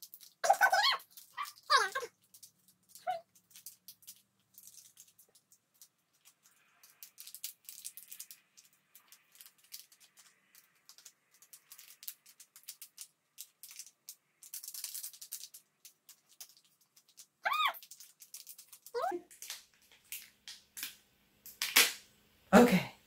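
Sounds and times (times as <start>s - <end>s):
packaging crackling: 0.0s - 22.0s
pet animal crying: 17.4s - 17.8s.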